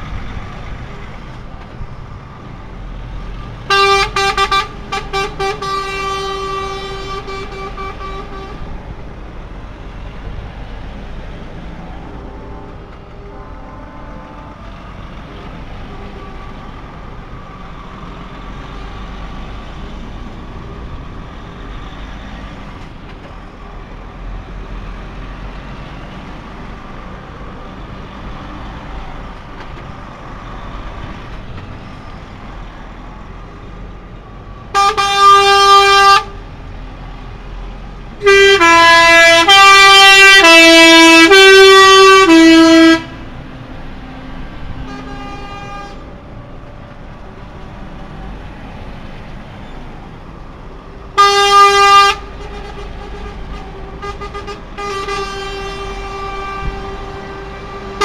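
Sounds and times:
truck horns honking: 3.2 - 8.9, 11.6 - 17.9, 34.6 - 36.5, 38.0 - 46.3, 51.1 - 58.0.

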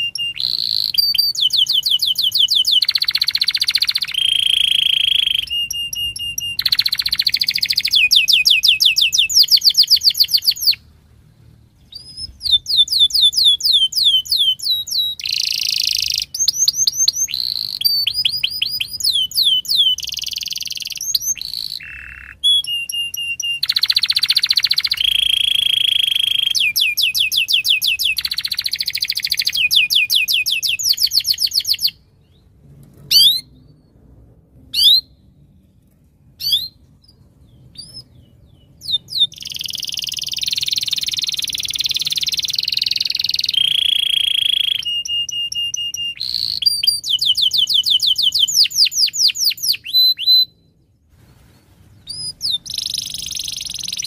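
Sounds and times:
canary singing trills: 0.0 - 10.9, 11.8 - 32.5, 33.1 - 34.0, 36.4 - 50.9, 51.9 - 54.0.

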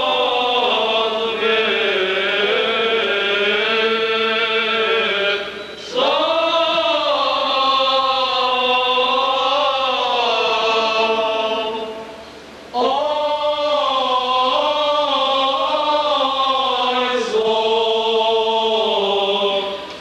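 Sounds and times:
choir chanting a hymn: 0.0 - 20.0.

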